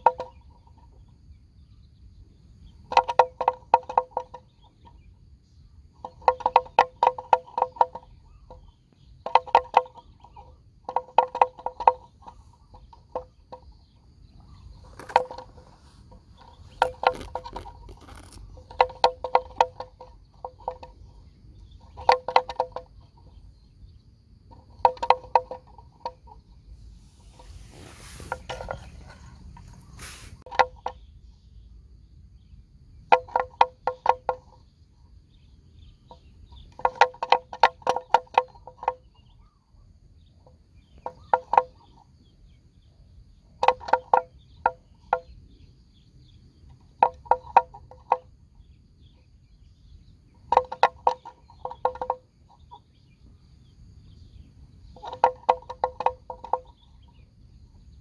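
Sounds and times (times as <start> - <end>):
hollow animal bell clonking: 0.0 - 1.0, 2.8 - 5.1, 6.0 - 23.7, 24.5 - 26.6, 46.7 - 48.3, 54.8 - 57.2.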